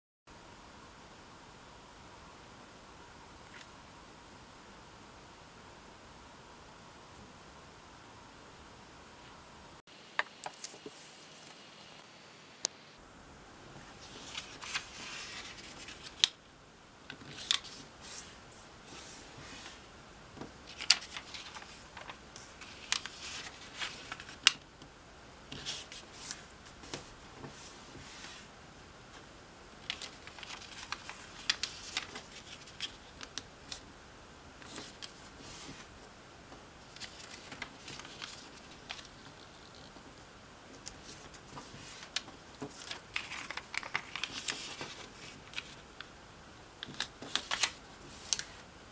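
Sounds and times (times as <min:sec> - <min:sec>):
paper crease snaps: 0:10.2 - 0:12.0
paper folding rustles and crackles: 0:10.4 - 0:12.0, 0:13.8 - 0:16.4, 0:17.1 - 0:24.6, 0:25.5 - 0:28.5, 0:29.2 - 0:33.8, 0:34.6 - 0:36.0, 0:36.8 - 0:40.1, 0:40.7 - 0:46.1, 0:46.8 - 0:48.6.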